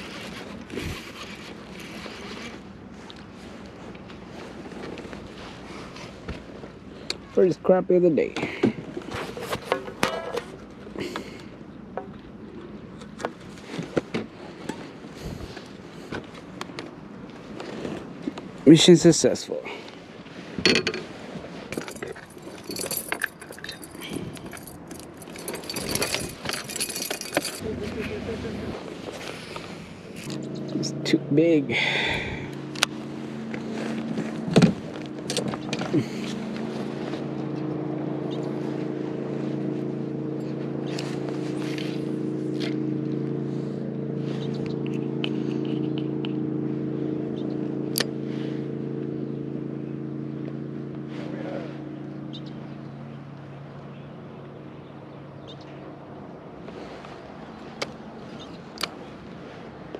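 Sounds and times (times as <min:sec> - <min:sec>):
metallic clinks and jangling: 0:21.7 - 0:27.7.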